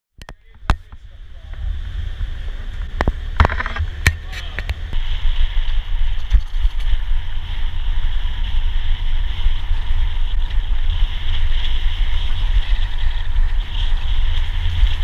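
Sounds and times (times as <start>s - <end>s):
wind buffeting microphone: 0.2s - 15.0s
bike knocking over stones: 2.8s - 4.8s.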